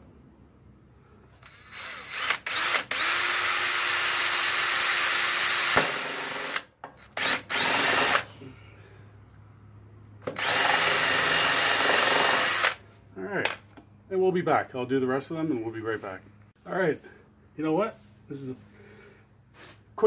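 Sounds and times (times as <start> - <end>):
cordless drill whining: 1.4 - 8.3, 10.3 - 12.8.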